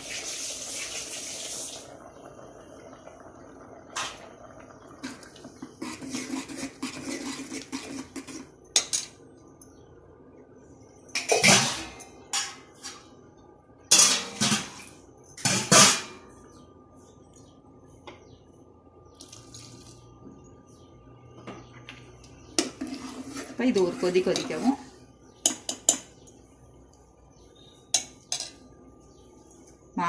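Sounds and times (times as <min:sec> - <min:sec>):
ladle scraping metal pot: 0:05.0 - 0:08.6, 0:22.6 - 0:24.8.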